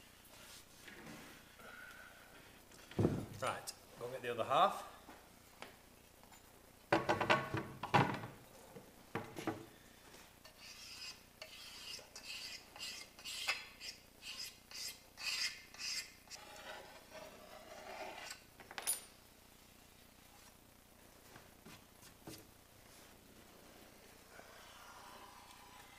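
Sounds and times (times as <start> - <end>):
soft rubbing: 20.2 - 25.9.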